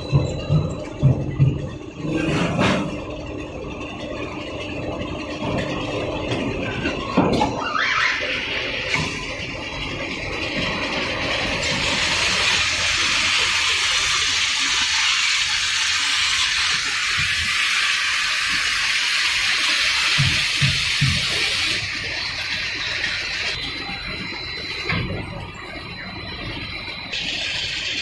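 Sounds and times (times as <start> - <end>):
frying machine rushing hiss: 7.5 - 23.9, 27.1 - 28.0.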